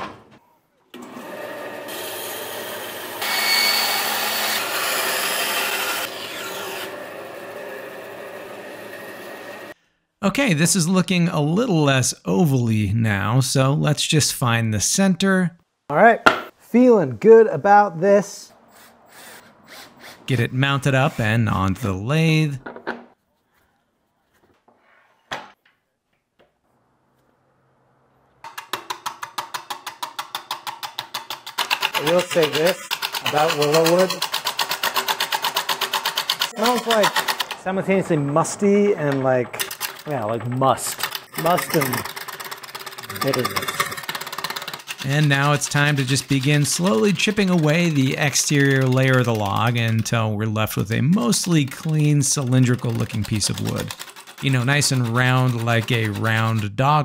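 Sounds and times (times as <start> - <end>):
bandsaw cutting through log: 1.0 - 9.7, 32.0 - 37.5, 41.2 - 50.0, 51.0 - 56.7
wood lathe motor humming: 1.0 - 9.8.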